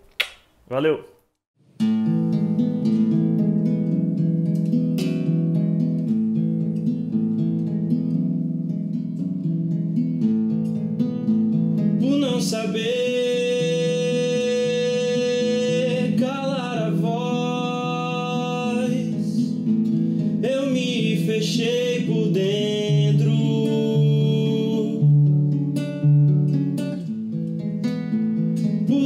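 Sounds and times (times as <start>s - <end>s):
acoustic guitar picking: 1.7s - 29.0s
man singing long notes: 12.0s - 19.6s, 20.4s - 25.2s.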